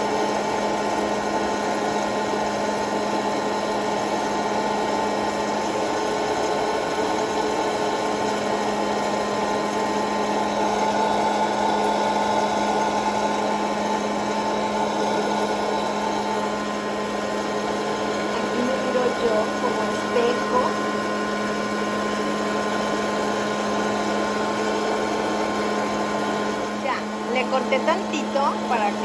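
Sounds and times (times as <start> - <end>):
popcorn maker fan humming: 0.0 - 29.0.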